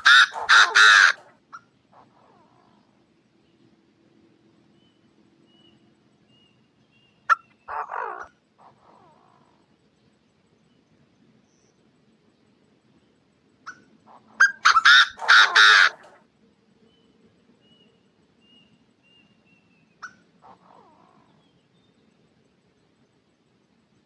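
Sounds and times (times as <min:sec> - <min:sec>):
francolin calling: 0:04.8 - 0:09.7, 0:13.6 - 0:16.2, 0:16.9 - 0:22.0.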